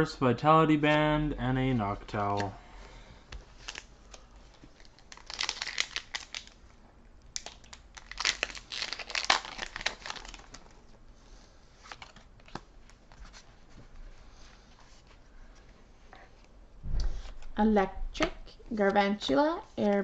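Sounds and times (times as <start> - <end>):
trading cards rustling and clicking: 2.1 - 2.6
foil wrapper crinkling and tearing: 4.8 - 6.6, 7.4 - 10.8.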